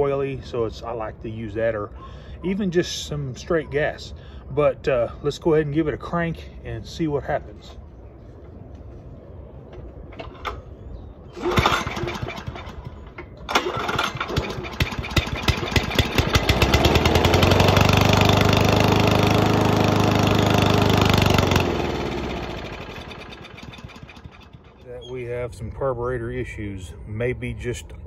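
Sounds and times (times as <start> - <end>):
mower engine running: 11.3 - 24.8.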